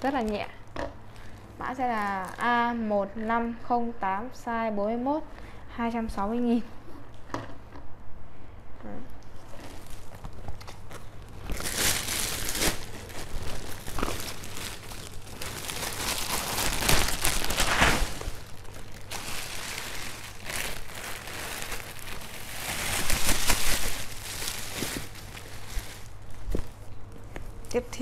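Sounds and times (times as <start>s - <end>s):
plastic bags crinkling: 0.0s - 2.8s, 9.4s - 26.9s.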